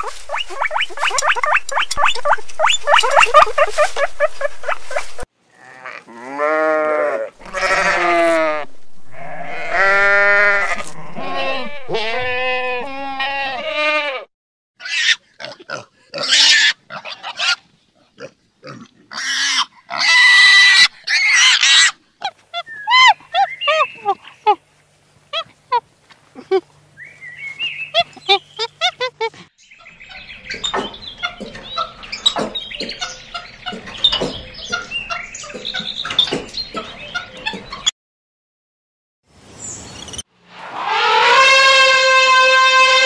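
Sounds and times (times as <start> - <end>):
high chirps: 0.0 - 5.2
piglets squealing: 0.0 - 5.2, 6.3 - 14.1, 14.8 - 17.6, 18.6 - 24.6, 27.9 - 29.4, 40.8 - 43.0
sheep bleating: 5.5 - 14.3.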